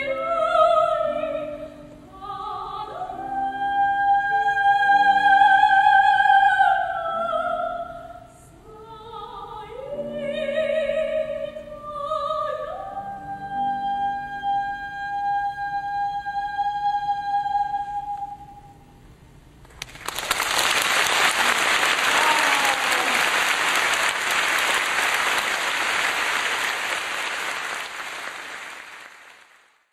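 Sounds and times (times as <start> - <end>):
audience applause: 19.7 - 29.8.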